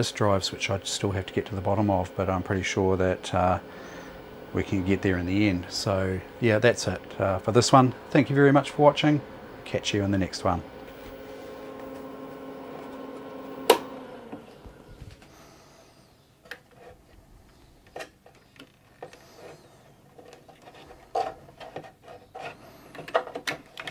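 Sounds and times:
computer humming: 0.0 - 16.2
power switch click: 10.8 - 14.0
small clicks and rubbing: 16.4 - 23.9.

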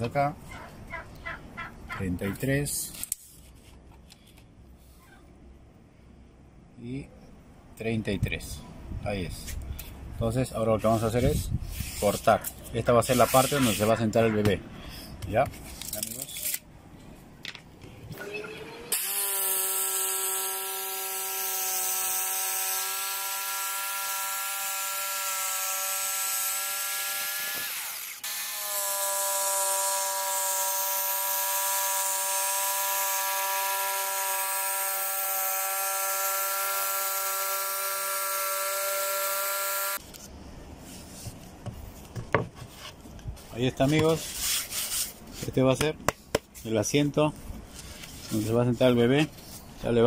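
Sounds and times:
electric saw cutting wood: 18.2 - 40.0.

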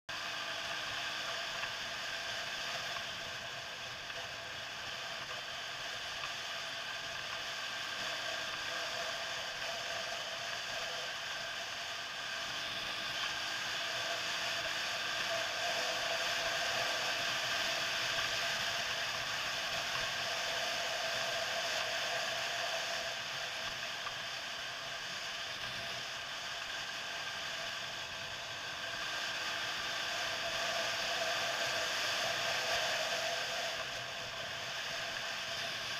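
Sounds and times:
mechanical whine: 0.1 - 35.9.

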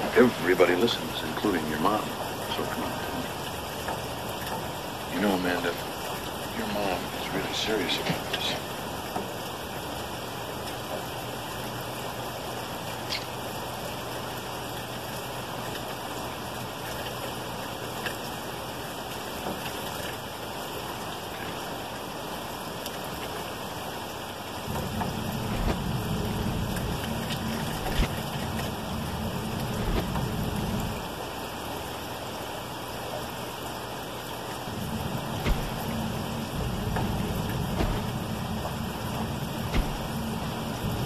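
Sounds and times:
steady rain falling: 0.0 - 41.0
low rumble: 24.7 - 31.1, 34.7 - 41.0.

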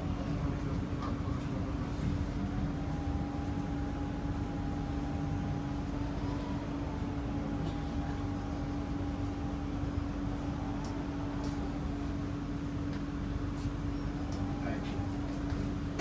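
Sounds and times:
metro train rumble: 0.0 - 16.0.

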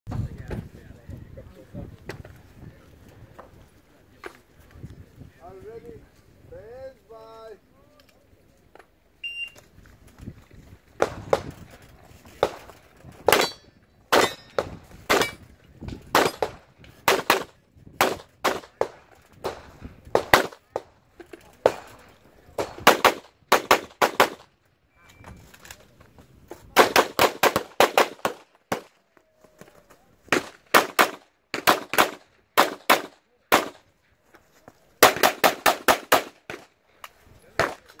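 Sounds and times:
shot timer beep: 9.2 - 9.6
pistol shots: 13.3 - 15.4, 16.1 - 20.9, 22.6 - 24.4, 26.8 - 28.9, 30.3 - 33.8, 35.0 - 36.7.

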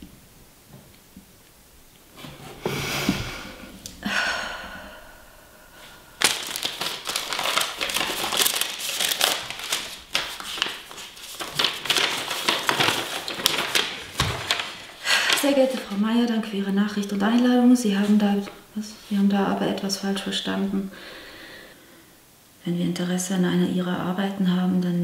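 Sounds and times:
paper rustling and crinkling: 6.2 - 16.0.

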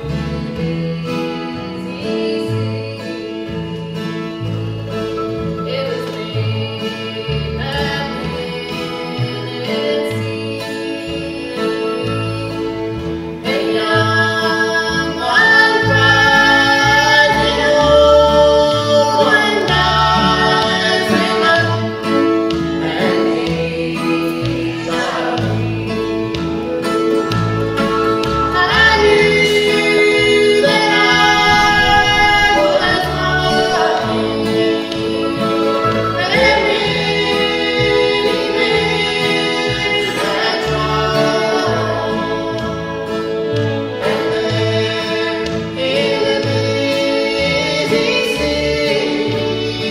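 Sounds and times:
fiddle: 0.0 - 49.9
mandolin: 0.0 - 49.9
strummed acoustic guitar: 0.0 - 49.9
upright bass: 0.0 - 49.9
woman singing: 0.0 - 49.9
man singing along: 28.5 - 49.9.

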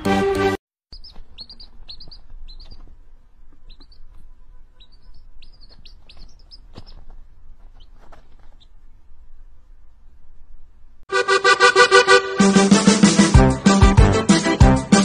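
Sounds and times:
chick peeping: 0.9 - 8.8.

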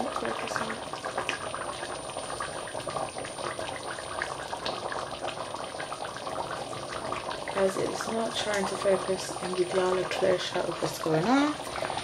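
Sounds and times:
gravy simmering in a pot: 0.0 - 12.0.

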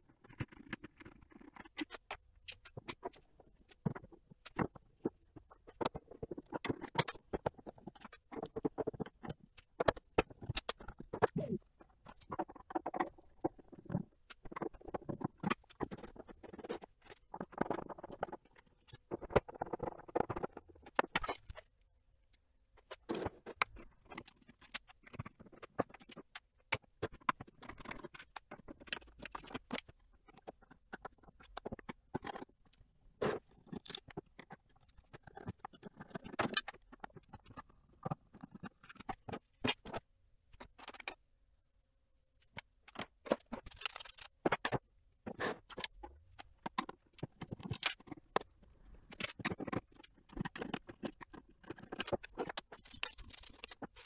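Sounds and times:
clicks and scrapes of parts handled: 0.1 - 41.2, 42.4 - 54.0.

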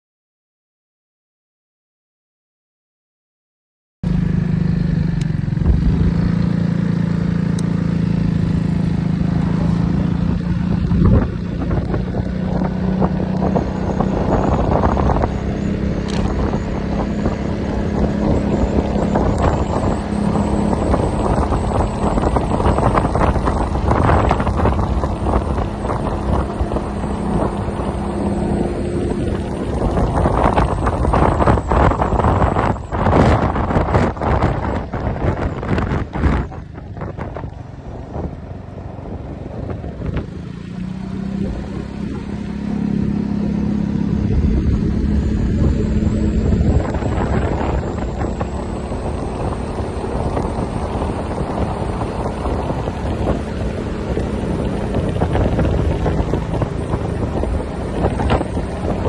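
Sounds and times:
scooter engine humming: 4.1 - 59.0
wind buffeting microphone: 7.6 - 59.0.

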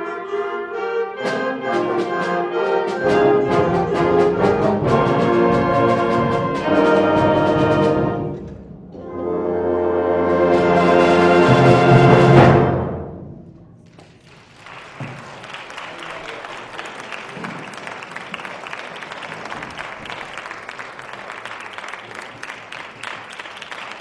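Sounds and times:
audience applause: 13.9 - 24.0.

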